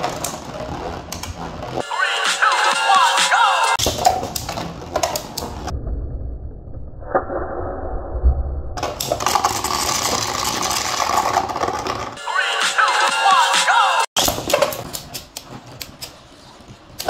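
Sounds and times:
spinning tops whirring and scraping: 8.8s - 12.2s.

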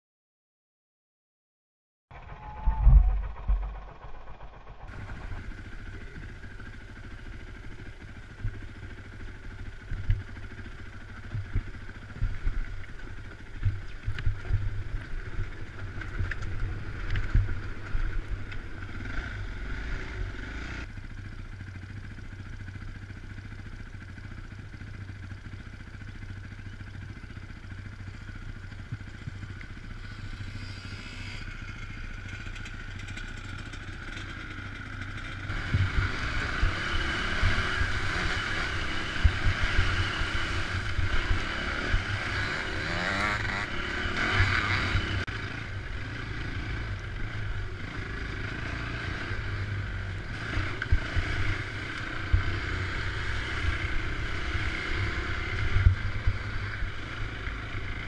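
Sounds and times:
dirt bike engine running: 2.1s - 58.0s.

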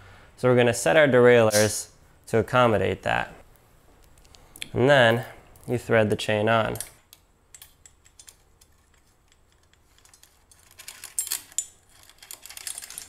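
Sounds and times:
bicycle chain clicking and rattling: 7.6s - 13.0s.

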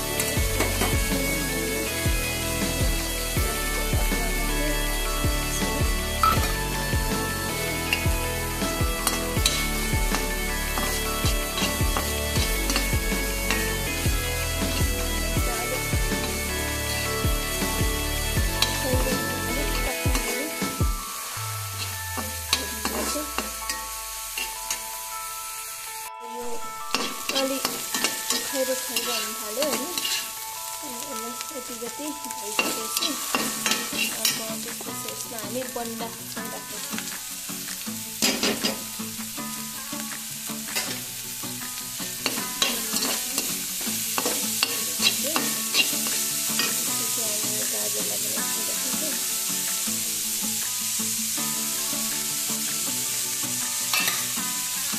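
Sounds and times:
vegetables sizzling in hot oil: 0.0s - 54.9s
spatula scraping a pan: 26.9s - 30.4s, 32.5s - 34.4s, 44.1s - 46.9s, 53.9s - 54.3s.

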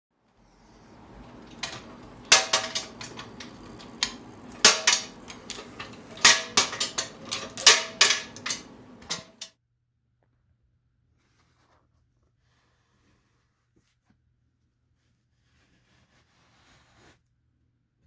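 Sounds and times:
metal clamps clanking and clicking: 1.1s - 9.5s.

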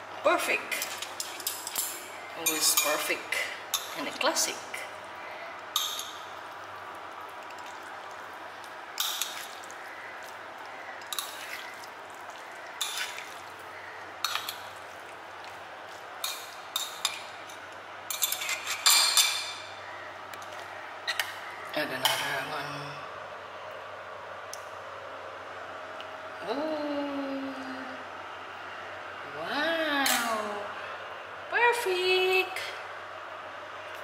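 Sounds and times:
wet noodle sounds: 5.2s - 17.7s.

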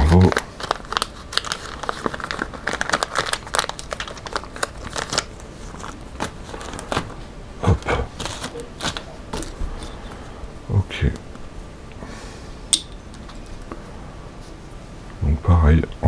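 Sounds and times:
plastic bag crinkling: 0.0s - 7.2s, 8.1s - 9.5s.

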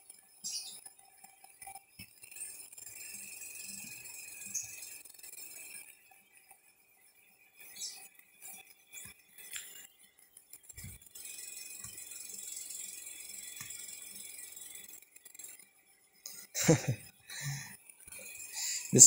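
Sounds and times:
small clinks: 0.0s - 19.0s
background hiss: 16.2s - 19.0s.

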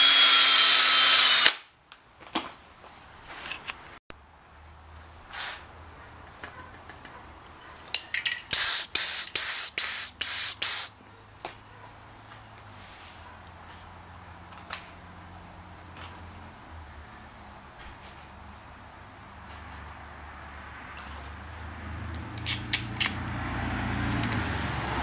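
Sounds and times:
aerosol spray can hissing: 8.6s - 10.9s.

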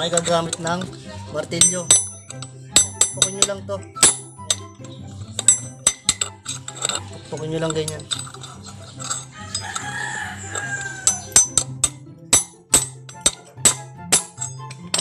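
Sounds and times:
hammer striking metal rod: 1.5s - 15.0s
rooster crowing: 9.3s - 11.4s.

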